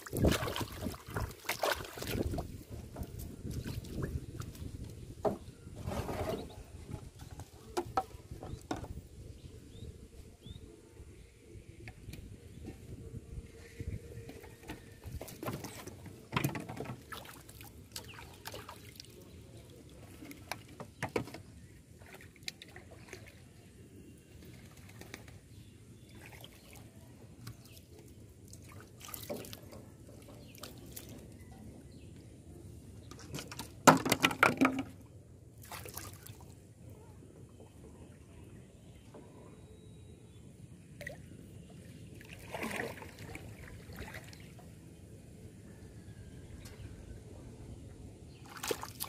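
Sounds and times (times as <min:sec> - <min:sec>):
water splashing around a boat: 0:00.0 - 0:09.8, 0:13.8 - 0:31.8, 0:33.0 - 0:38.5, 0:41.0 - 0:45.0, 0:48.4 - 0:49.0.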